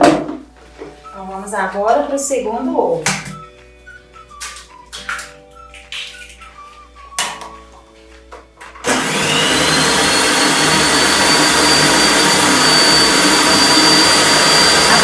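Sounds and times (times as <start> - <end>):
stand mixer motor whine: 8.8 - 15.0.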